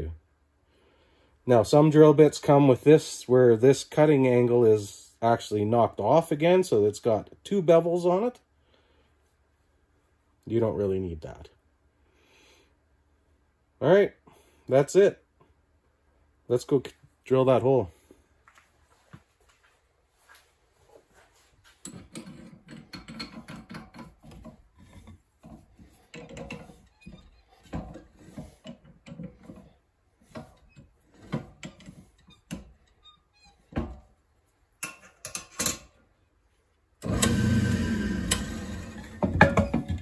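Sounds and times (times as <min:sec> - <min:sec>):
drill press motor running: 0:37.0 - 0:39.4.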